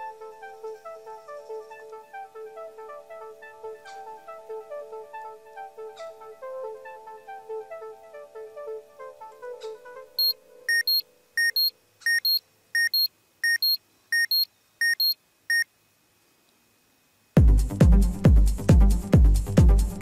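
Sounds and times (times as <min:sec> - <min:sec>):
soft melodic music: 0:00.0 - 0:11.3
short electronic beeps: 0:10.2 - 0:15.7.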